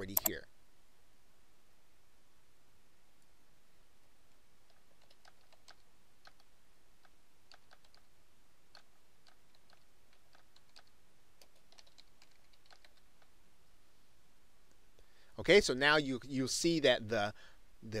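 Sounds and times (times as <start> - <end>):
faint keyboard typing: 0.0 - 0.4, 4.3 - 13.4.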